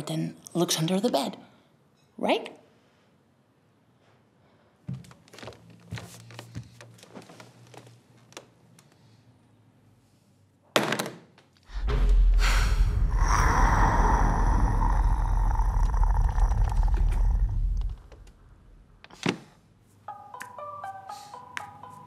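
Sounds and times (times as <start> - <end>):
monster snarling roar: 12.7 - 18.3.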